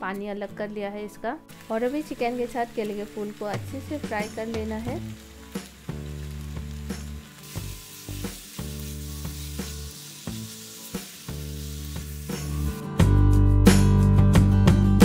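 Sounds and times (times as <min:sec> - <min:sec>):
soft background music: 0:00.0 - 0:15.0
food sizzling in oil: 0:01.4 - 0:13.0.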